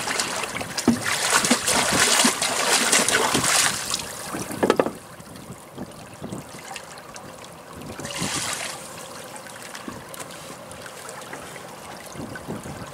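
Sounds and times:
water running and splashing: 0.0s - 4.7s.

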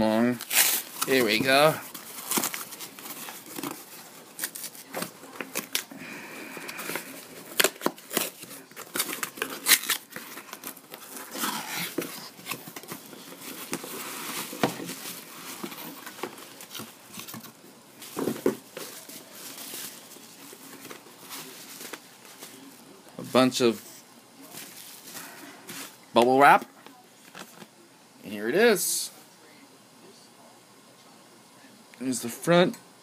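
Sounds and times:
cardboard ripping: 0.4s - 5.9s, 6.7s - 17.2s.

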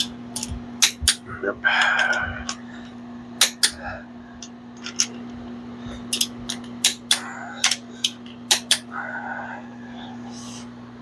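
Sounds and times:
torque wrench clicking: 6.1s - 8.9s.

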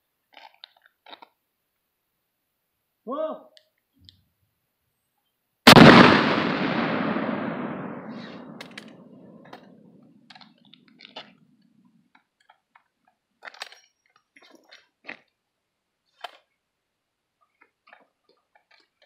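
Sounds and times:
shotgun boom: 5.7s - 9.4s.

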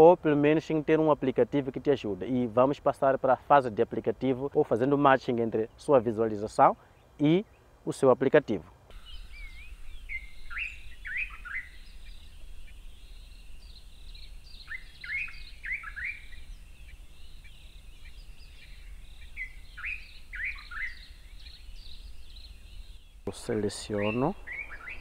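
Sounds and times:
bird whistling song: 8.9s - 25.0s
other birds calling: 8.9s - 25.0s.

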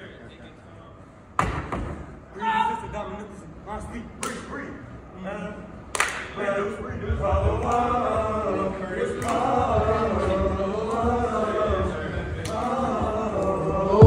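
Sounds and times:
men chanting in unison: 5.2s - 14.0s.

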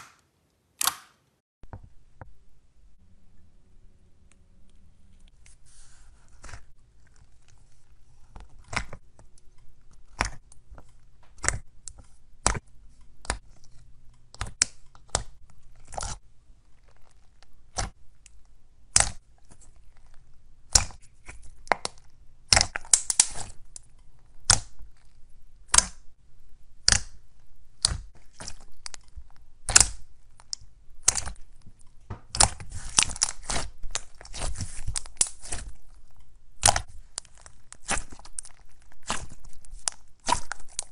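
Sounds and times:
slime crackling: 5.3s - 26.0s, 26.8s - 40.9s
slime popping and clicking: 18.9s - 19.2s, 26.8s - 27.2s, 29.6s - 31.4s, 36.6s - 40.9s.

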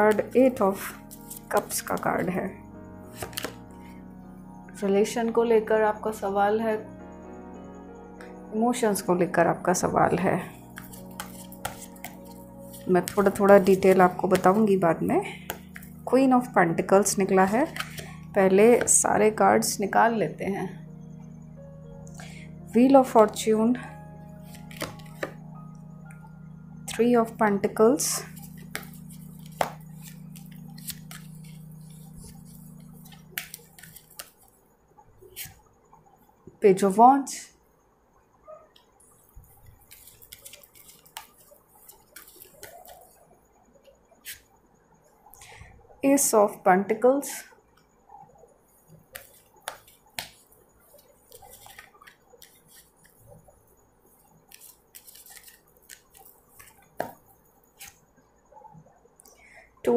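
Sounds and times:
cards clicking and snapping: 3.2s - 3.6s, 10.7s - 14.6s, 17.7s - 18.2s, 24.5s - 25.4s, 28.4s - 34.5s, 39.9s - 43.1s, 49.1s - 50.4s, 51.0s - 53.2s, 54.5s - 57.2s.

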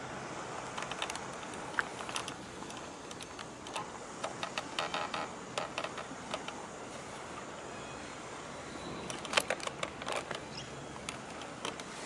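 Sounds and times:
steady hiss: 0.0s - 12.0s
light clicks and ticks: 0.6s - 6.6s, 9.1s - 11.9s.

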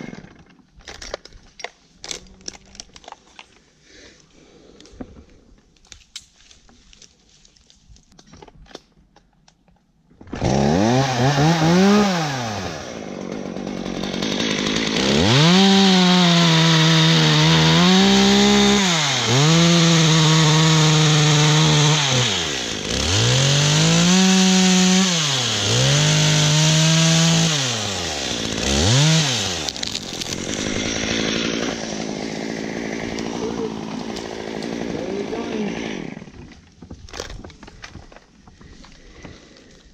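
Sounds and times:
chainsaw cutting wood: 0.0s - 1.2s, 10.2s - 39.9s.

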